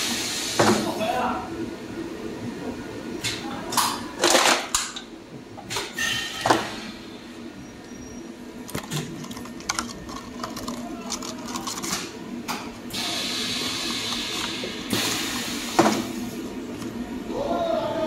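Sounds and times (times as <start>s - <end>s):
low machine hum: 0.0s - 18.0s
plastic packs crackling and clicking: 8.7s - 12.2s.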